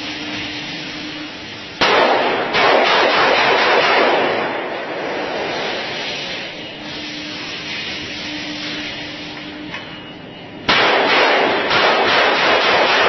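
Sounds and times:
faint hum: 0:00.0 - 0:02.6, 0:03.4 - 0:11.7
blank pistol shots in rapid succession: 0:01.8 - 0:04.8, 0:10.7 - 0:13.0.

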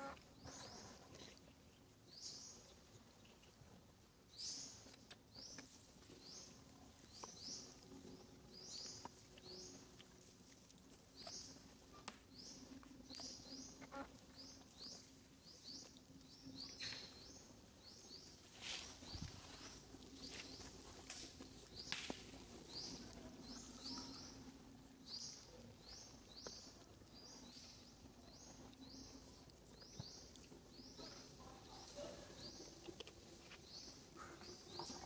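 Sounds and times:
faint low hum: 0:00.0 - 0:35.0
bird chirping: 0:12.4 - 0:19.3.

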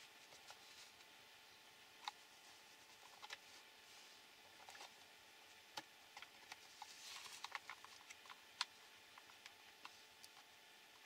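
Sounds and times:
small plastic parts clicking: 0:05.7 - 0:10.5.

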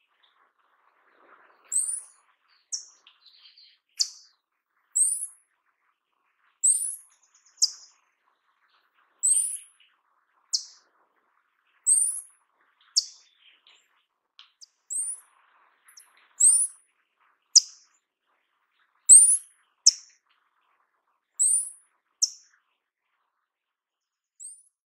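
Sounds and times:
bird giving high thin calls: 0:01.7 - 0:03.0, 0:05.0 - 0:05.3, 0:06.6 - 0:07.0, 0:09.2 - 0:09.6, 0:11.9 - 0:12.3, 0:14.9 - 0:15.2, 0:16.4 - 0:16.8, 0:19.1 - 0:20.1, 0:21.4 - 0:22.4.

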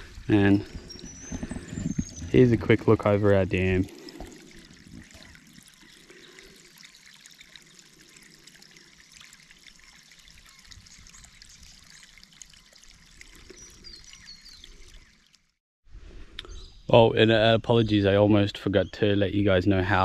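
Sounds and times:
water trickling from pipe: 0:00.0 - 0:15.6.

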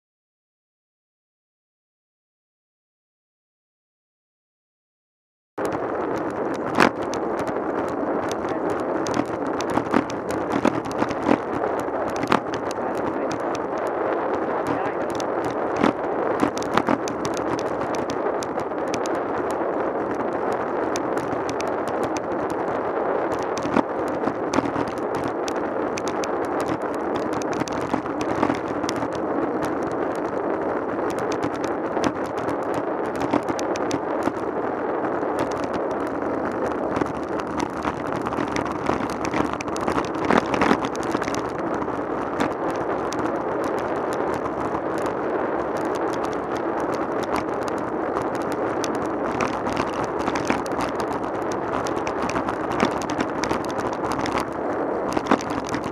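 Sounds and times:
sharp clicks and knocks: 0:05.6 - 0:13.9, 0:14.6 - 0:19.2, 0:23.3 - 0:30.3, 0:55.1 - 0:55.9
bike tyres rolling on tarmac: 0:05.6 - 0:55.9.

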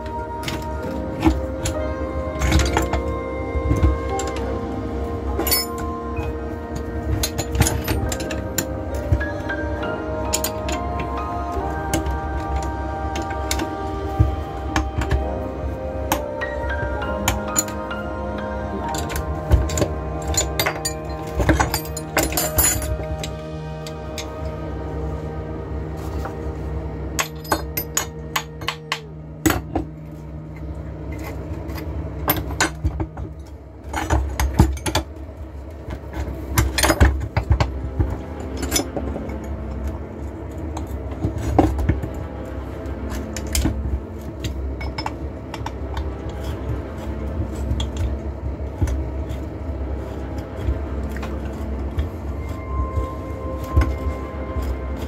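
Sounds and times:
metal tools clinking on workbench: 0:05.4 - 0:05.9, 0:18.9 - 0:23.3, 0:27.2 - 0:29.7.

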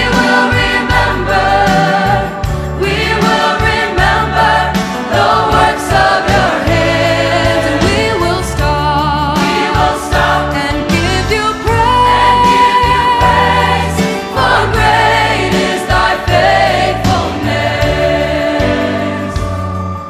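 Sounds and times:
youth choir singing: 0:00.0 - 0:20.0
female soloist singing: 0:07.8 - 0:13.5.

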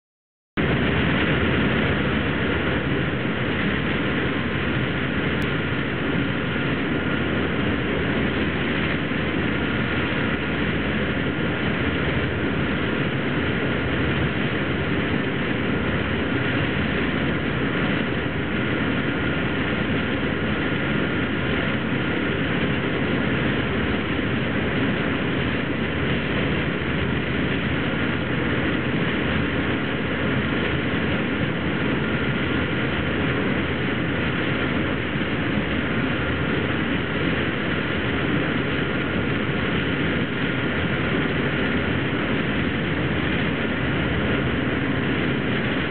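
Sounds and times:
motorboat engines running: 0:00.6 - 0:45.9
rush of boat wake: 0:00.6 - 0:45.9
wind: 0:00.6 - 0:45.9.

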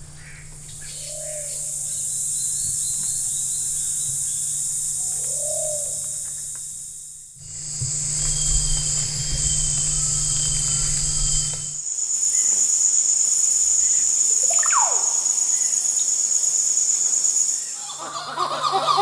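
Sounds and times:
insect chorus buzzing: 0:00.0 - 0:19.0
low hum: 0:07.4 - 0:11.8
bird whistle: 0:14.5 - 0:15.7.

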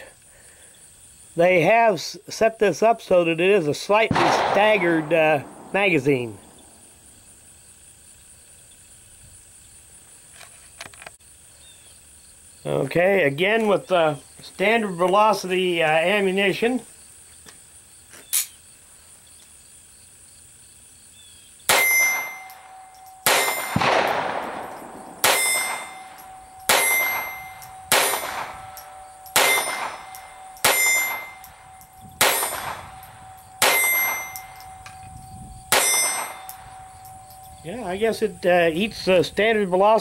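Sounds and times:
pistol shots: 0:04.1 - 0:06.9, 0:21.7 - 0:34.8, 0:35.7 - 0:37.5
metallic ringing after shots: 0:04.1 - 0:07.0, 0:21.7 - 0:38.7.

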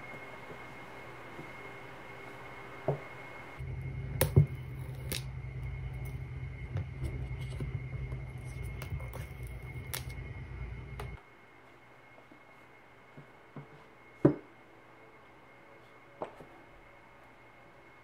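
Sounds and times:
low rumble: 0:03.6 - 0:11.2.

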